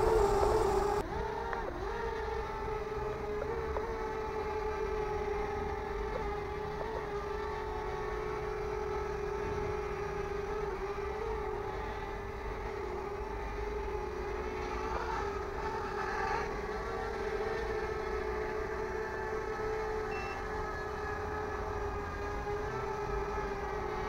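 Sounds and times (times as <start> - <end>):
toy drone buzzing whine: 0.0 - 24.0.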